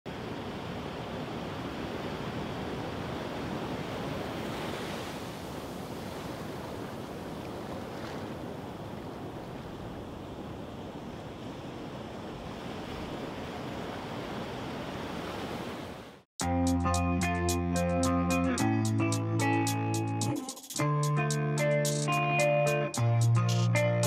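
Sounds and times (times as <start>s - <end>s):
surf washing over beach: 0.1s - 16.2s.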